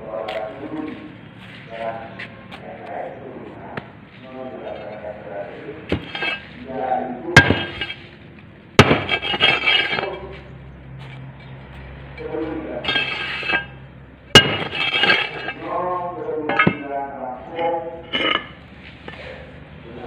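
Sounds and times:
gritty metal scrape over mould: 4.6 - 8.2, 8.8 - 11.5, 12.2 - 19.6
metal tools clanking: 5.9 - 6.7, 7.4 - 8.2, 8.8 - 19.6.

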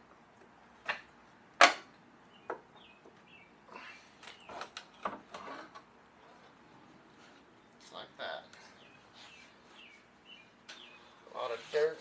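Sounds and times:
clicks and scraping: 4.2 - 6.6.

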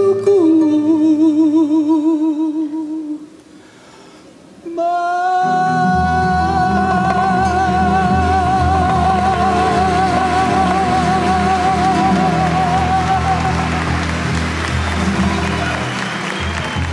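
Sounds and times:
man singing with vibrato: 0.0 - 3.5, 4.6 - 14.1.

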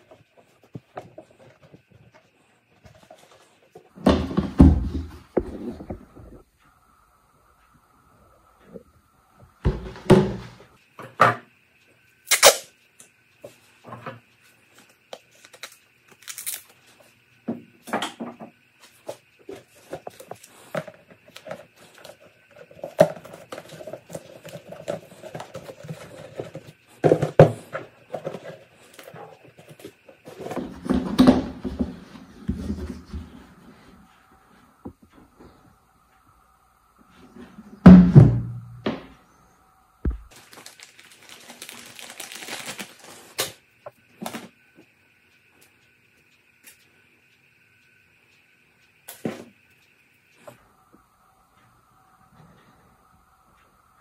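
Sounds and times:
plastic bucket knocking and scraping: 4.0 - 6.4.

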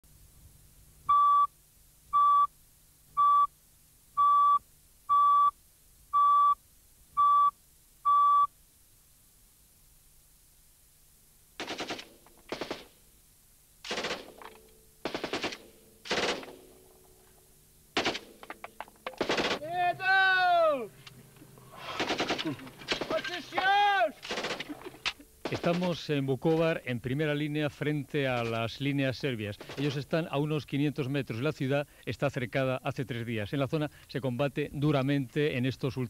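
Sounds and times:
short beeps: 1.1 - 1.5, 2.1 - 2.5, 3.2 - 3.5, 4.2 - 5.6, 6.2 - 6.6, 7.2 - 8.5
machine-gun fire: 11.6 - 13.0, 13.8 - 16.8, 18.0 - 18.5, 19.1 - 19.7, 21.8 - 23.4, 24.2 - 26.0, 29.6 - 29.9.

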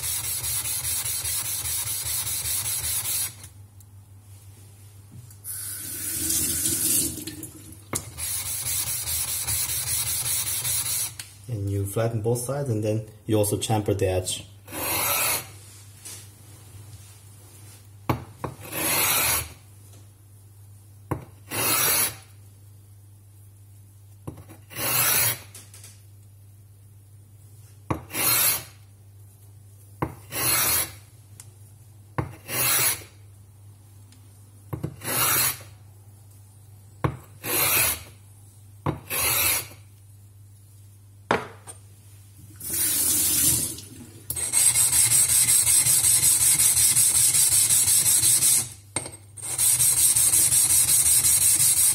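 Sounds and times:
stone scraping on lapping plate: 39.0 - 39.8.

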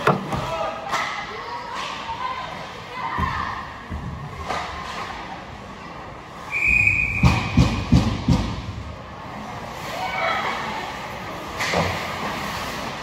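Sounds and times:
short high whistle: 6.5 - 7.6.

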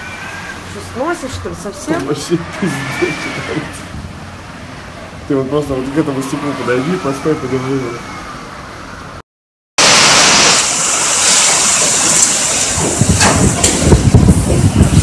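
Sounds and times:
hurricane wind and driving rain: 0.0 - 5.3, 9.8 - 15.0
wind gusts buffeting microphone: 3.4 - 4.5, 11.9 - 15.0.

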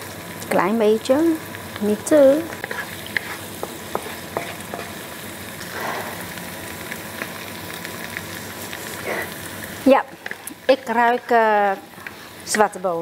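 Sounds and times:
garlic sizzling in oil: 0.0 - 13.0
spatula scraping wok: 2.3 - 6.3
wooden spatula stirring: 2.4 - 5.0.

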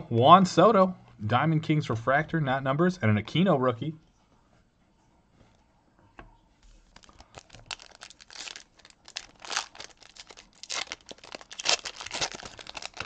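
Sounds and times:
foil card pack tearing and crinkling: 6.9 - 13.0.

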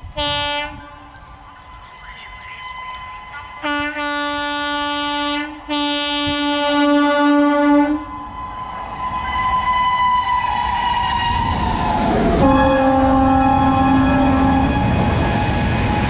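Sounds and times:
train horn blasts: 0.1 - 1.2, 3.6 - 8.5, 12.4 - 15.4.

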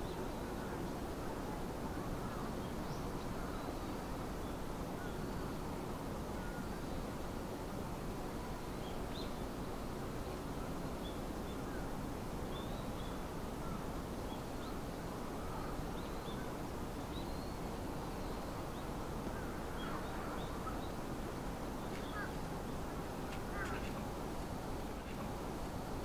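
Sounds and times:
faint bird chirps: 12.5 - 21.1, 21.8 - 24.1.

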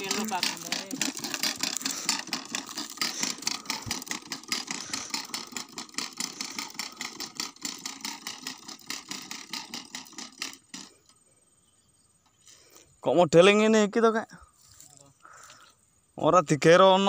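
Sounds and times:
small engine chugging: 0.0 - 13.1.

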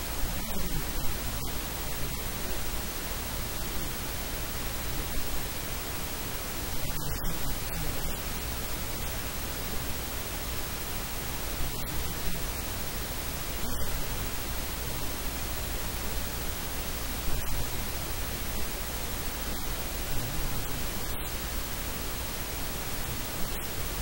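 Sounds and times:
faint low hum: 0.0 - 24.0
steady static hiss: 0.0 - 24.0.

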